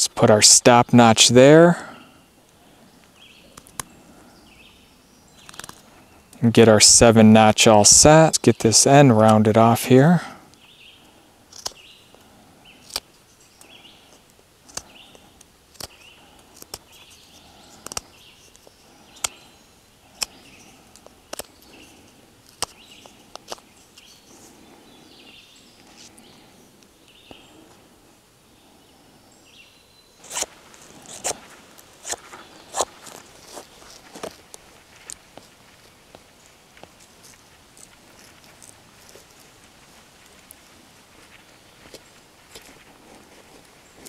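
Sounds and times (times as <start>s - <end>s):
knife shaving wood: 5.4s - 5.9s, 11.5s - 24.6s, 30.2s - 44.0s.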